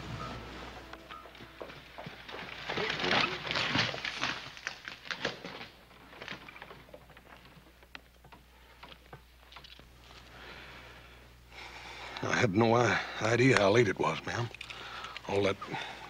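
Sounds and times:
horse hooves clopping: 0.0s - 4.3s.

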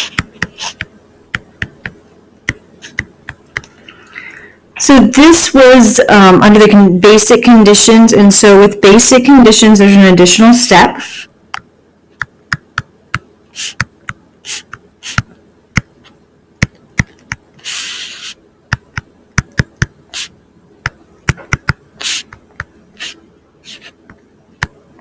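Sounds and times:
stylus tapping on tablet screen: 0.0s - 3.7s, 11.5s - 17.5s, 18.7s - 20.0s, 20.8s - 22.8s.

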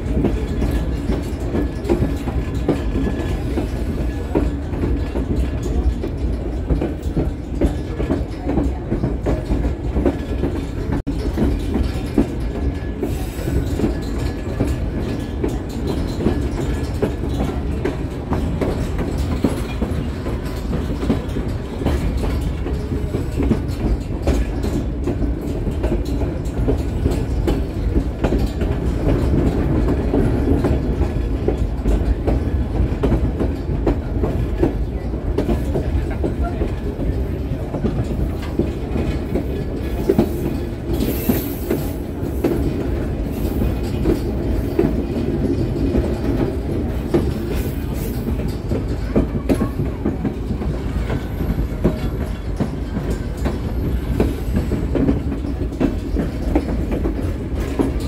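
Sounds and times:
railcar rumbling on track: 0.0s - 58.0s
wheels clicking over rail joints: 0.0s - 58.0s.

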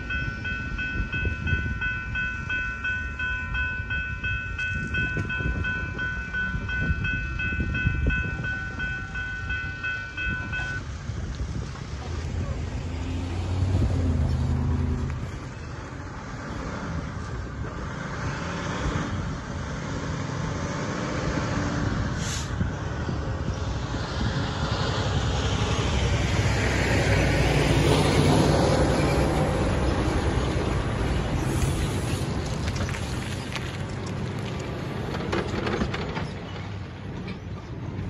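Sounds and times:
truck diesel engine and tyres: 0.0s - 38.0s
car passing: 8.1s - 35.7s.

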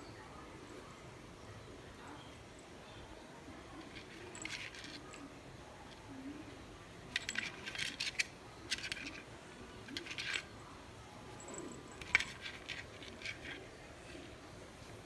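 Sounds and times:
small bell jingling: 3.9s - 5.3s.

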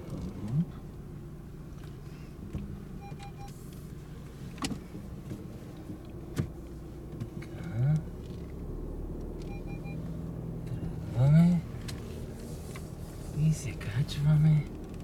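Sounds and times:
car engine running: 0.0s - 15.0s
short beeps: 3.0s - 3.5s, 9.4s - 10.0s.

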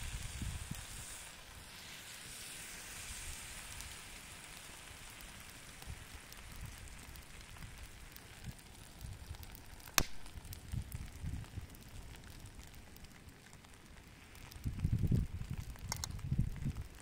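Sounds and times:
rice spilling with hiss and patter: 0.0s - 17.0s.

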